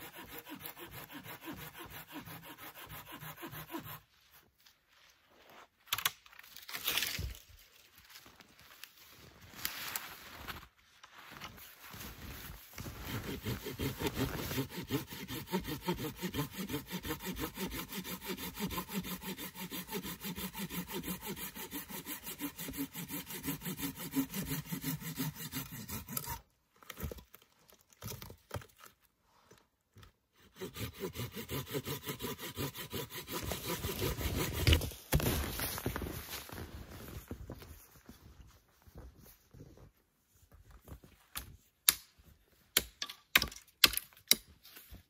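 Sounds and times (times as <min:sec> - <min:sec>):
hand saw cutting log: 0:00.0 - 0:04.1, 0:13.0 - 0:26.4, 0:30.4 - 0:35.5.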